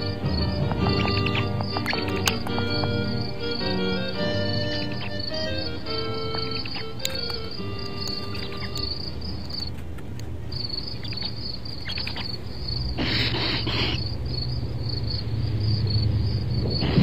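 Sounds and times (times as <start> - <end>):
low steady drone: 0.0 - 9.5
crickets chirping: 0.0 - 17.0.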